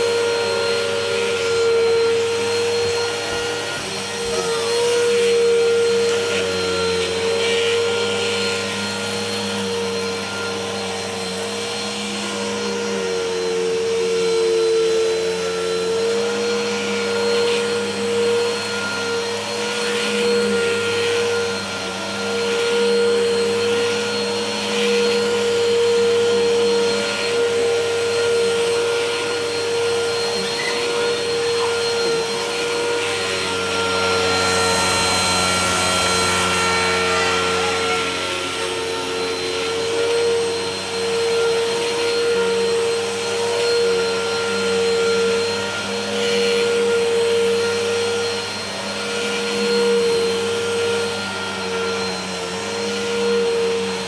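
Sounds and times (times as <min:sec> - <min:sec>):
vacuum cleaner running: 0:00.0 - 0:54.0.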